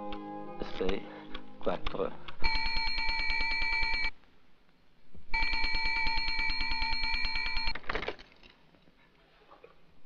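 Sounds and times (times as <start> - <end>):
telephone bell ringing: 2.4 - 4.1, 5.4 - 7.7.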